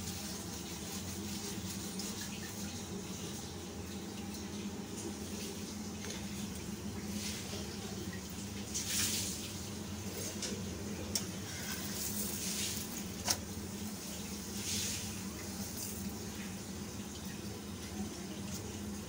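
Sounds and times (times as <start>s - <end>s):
oil sizzling: 8.4s - 19.0s.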